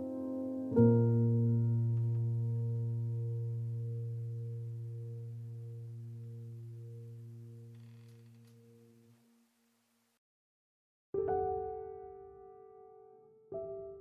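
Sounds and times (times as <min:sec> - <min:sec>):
background music low ringing note: 0:00.0 - 0:09.6.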